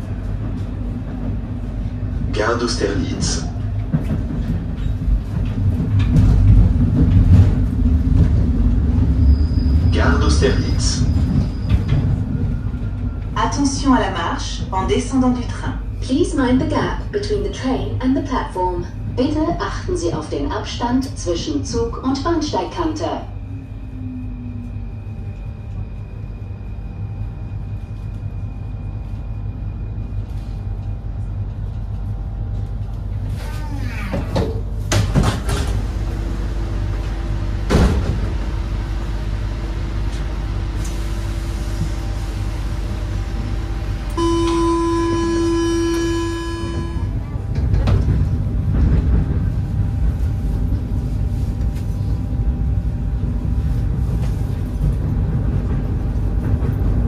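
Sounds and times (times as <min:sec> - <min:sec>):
train equipment humming: 0:00.0 - 0:57.0
train rumbling away: 0:00.0 - 0:57.0
door-closing warning buzzer: 0:44.2 - 0:47.2.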